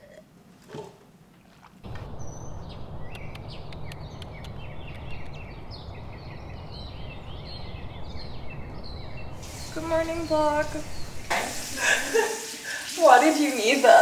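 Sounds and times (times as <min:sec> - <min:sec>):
low outdoor rumble: 0:01.7 - 0:12.2
birds chirping and singing: 0:01.9 - 0:12.0.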